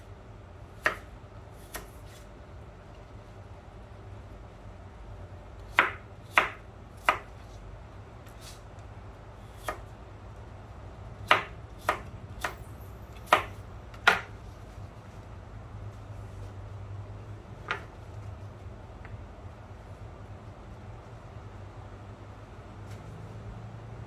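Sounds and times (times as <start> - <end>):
knife dicing on plastic cutting board: 13.2 - 14.3.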